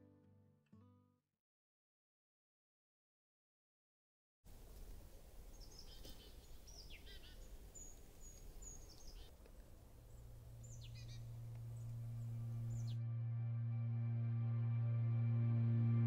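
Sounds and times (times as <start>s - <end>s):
faint outdoor hiss: 4.5s - 13.0s
small birds calling: 5.5s - 13.0s
low steady drone: 10.4s - 16.0s.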